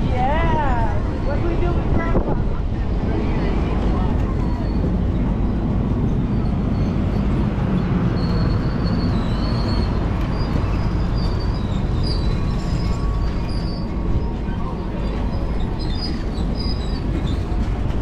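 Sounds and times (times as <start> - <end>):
train rumbling: 0.0 - 18.0
faint high wheel squeals: 4.0 - 18.0.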